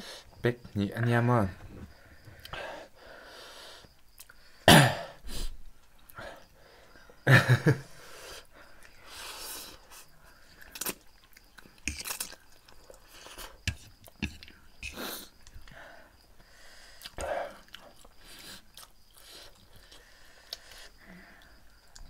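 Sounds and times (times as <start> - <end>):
person coughing: 4.7 - 5.2.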